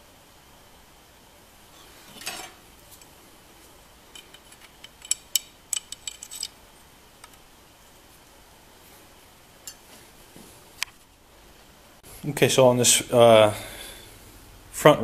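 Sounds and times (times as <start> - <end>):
small metallic clicks and clinks: 4.1 - 6.6.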